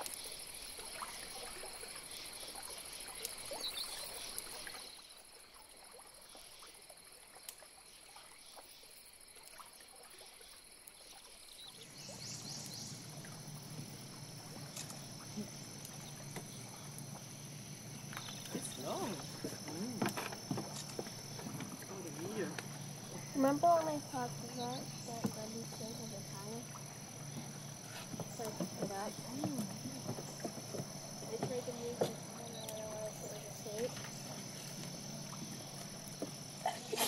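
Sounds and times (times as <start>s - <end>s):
insects calling drone: 0.0s - 37.0s
second high insect tone: 11.6s - 37.0s
low steady hum: 11.8s - 37.0s.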